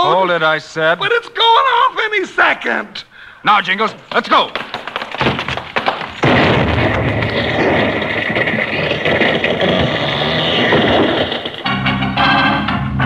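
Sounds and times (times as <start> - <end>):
quick knocks: 4.1 - 12.1
breaking wood and falling debris: 4.2 - 12.2.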